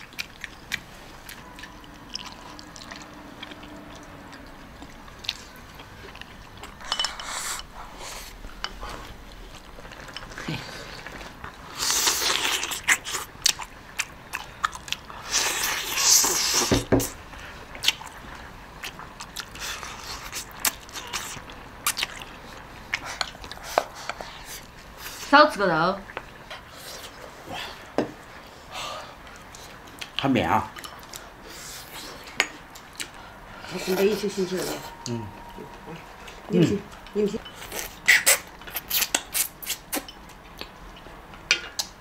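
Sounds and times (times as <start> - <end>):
chewing meat with wet clicks: 0.0 - 6.8, 12.4 - 15.2, 17.7 - 23.6, 29.2 - 31.3, 32.3 - 33.2, 36.9 - 42.0.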